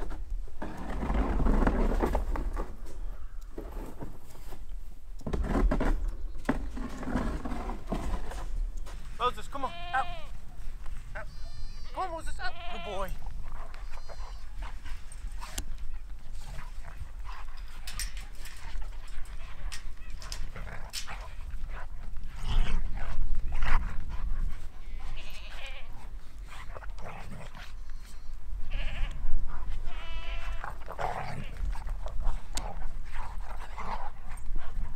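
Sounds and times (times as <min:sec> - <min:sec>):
goats bleating: 0:09.3 - 0:10.4, 0:11.1 - 0:14.5, 0:24.8 - 0:26.0, 0:28.6 - 0:29.2, 0:29.8 - 0:31.6.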